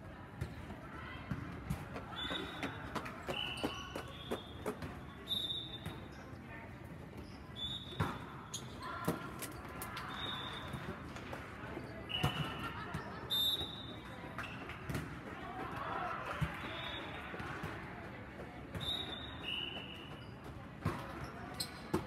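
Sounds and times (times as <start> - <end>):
sneakers squeaking on floor: 2.1 - 6.4, 7.1 - 10.9, 11.8 - 14.7, 18.7 - 22.0.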